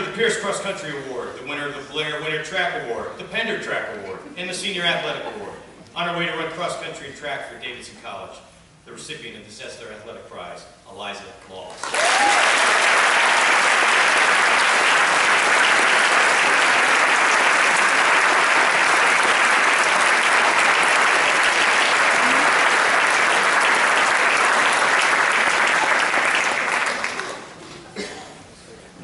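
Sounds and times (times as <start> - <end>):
audience applauding: 11.8 - 27.6.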